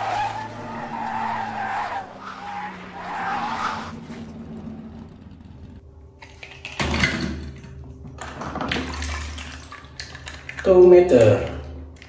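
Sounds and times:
car tyres skidding and squealing: 0:00.0 - 0:05.7.

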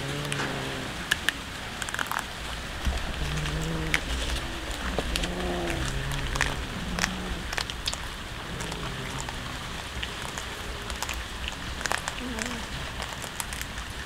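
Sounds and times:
cat growling moans: 0:00.0 - 0:01.1, 0:02.8 - 0:11.1.

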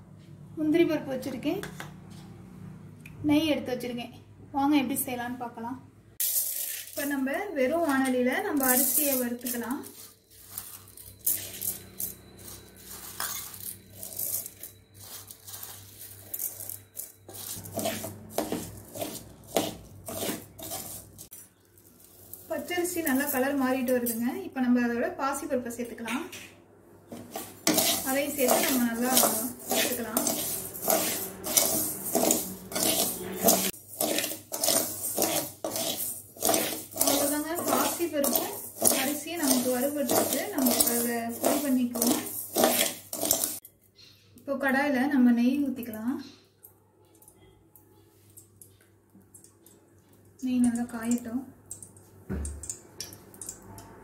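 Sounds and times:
ladle stirring and scraping pan: 0:06.2 - 0:24.2, 0:27.1 - 0:43.6
grains rustling: 0:08.6 - 0:23.6, 0:27.2 - 0:43.6.

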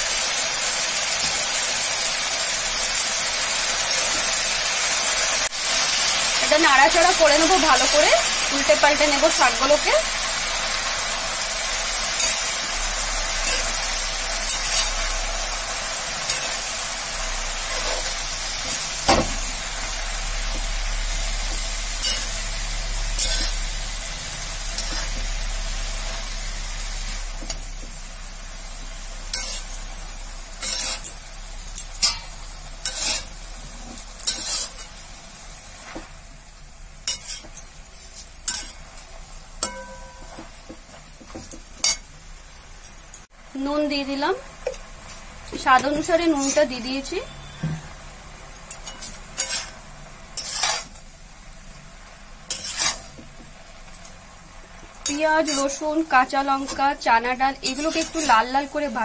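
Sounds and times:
leaves sizzling in oil: 0:00.0 - 0:59.0
spatula scraping and tapping pan: 0:31.8 - 0:34.9, 0:37.1 - 0:38.8, 0:48.6 - 0:51.0, 0:52.5 - 0:54.2, 0:57.6 - 0:58.6.

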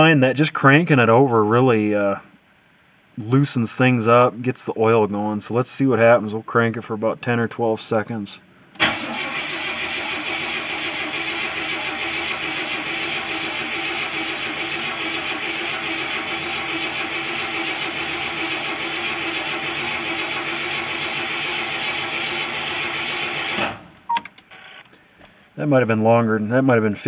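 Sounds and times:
starter motor cranking engine: 0:08.8 - 0:23.8.

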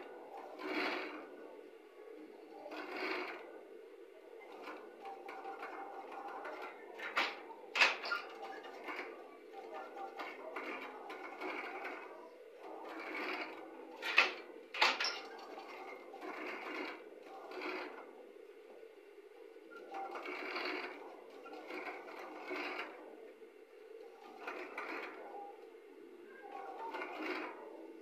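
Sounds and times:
sewing machine stitching: 0:00.4 - 0:01.3, 0:02.7 - 0:03.5, 0:04.5 - 0:18.1, 0:19.7 - 0:23.0, 0:24.2 - 0:25.3, 0:26.6 - 0:27.8.

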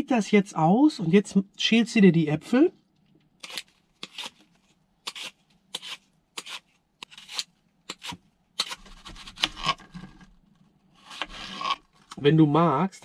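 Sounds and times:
vegetable peeler scraping apple: 0:03.4 - 0:04.4, 0:05.0 - 0:10.0, 0:11.0 - 0:12.0.

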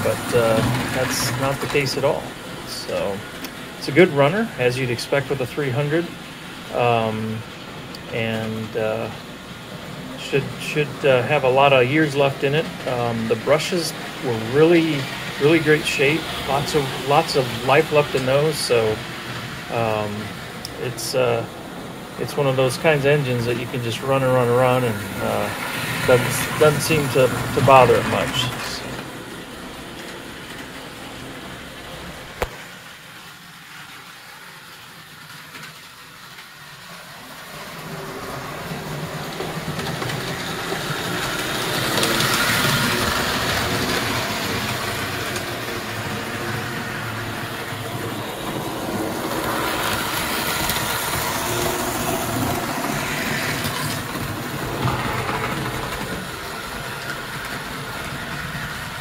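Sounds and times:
model train motor whir: 0:00.0 - 0:05.1, 0:22.4 - 0:32.8, 0:33.6 - 0:59.0
wheels clattering on rails: 0:00.0 - 0:32.9, 0:33.7 - 0:59.0.

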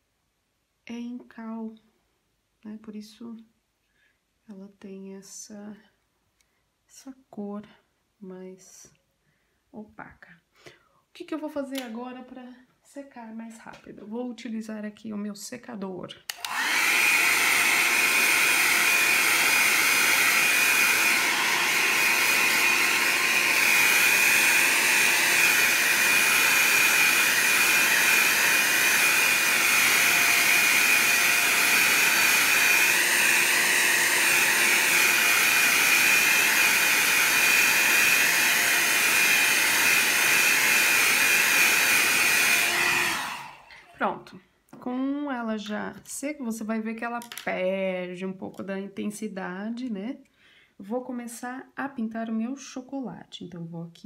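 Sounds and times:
hair dryer blowing: 0:16.3 - 0:44.0.

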